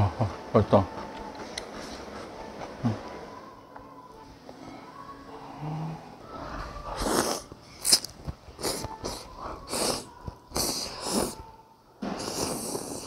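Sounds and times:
noodles being slurped: 7.0 - 11.4, 12.1 - 13.0.

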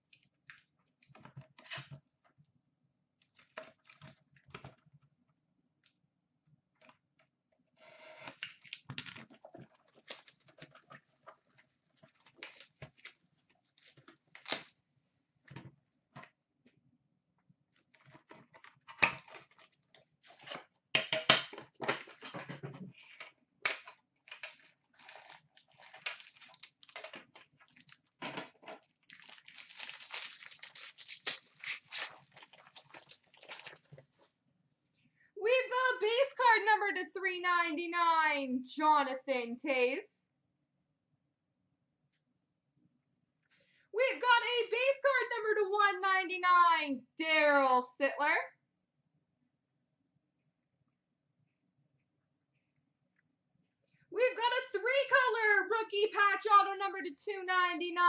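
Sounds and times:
foil wrapper crinkling and tearing: 8.4 - 10.7, 12.0 - 14.8, 24.3 - 28.2, 28.8 - 34.1.

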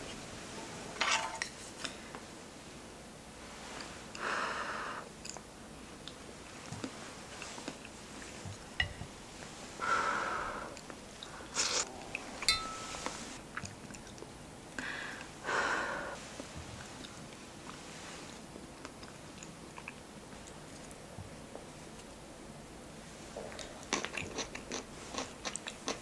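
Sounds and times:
soft chewing: 5.1 - 9.6, 10.8 - 15.4, 16.2 - 22.2, 23.4 - 26.0
spoon clicking on ceramic bowl: 8.8 - 9.1, 12.4 - 13.2
breathy sounds: 14.8 - 16.2.

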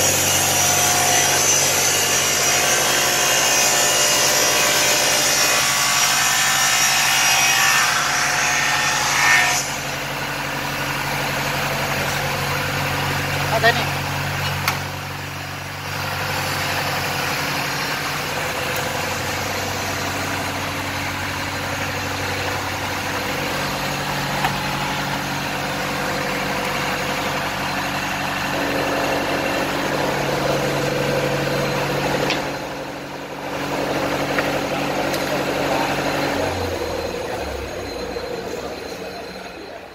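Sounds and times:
panel saw motor humming: 9.8 - 39.4.

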